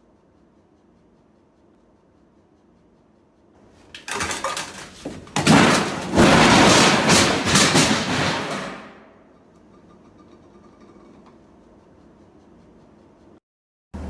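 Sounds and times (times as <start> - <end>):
metal boxes and table crashing: 3.8 - 9.2.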